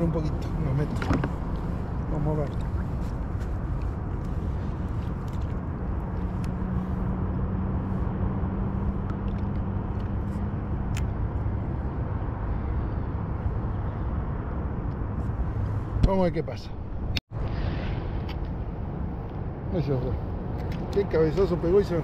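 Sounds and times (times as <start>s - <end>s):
low rumbling noise: 16.7s - 20.6s.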